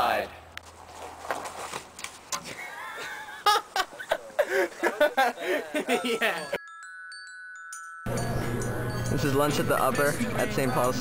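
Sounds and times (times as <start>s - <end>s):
young people laughing and shouting: 2.5s - 6.6s
soft chime notes: 6.0s - 11.0s.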